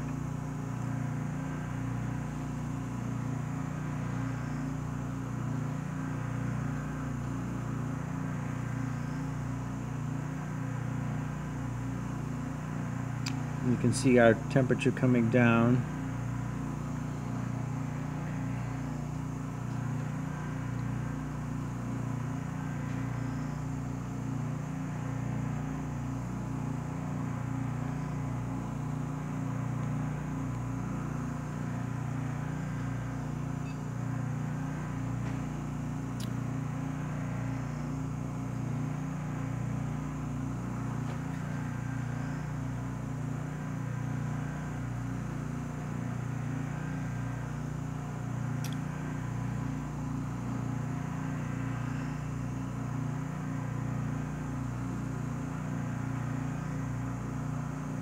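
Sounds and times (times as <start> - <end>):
low mechanical hum of pump: 0.0 - 58.0
faint click: 48.6 - 48.8.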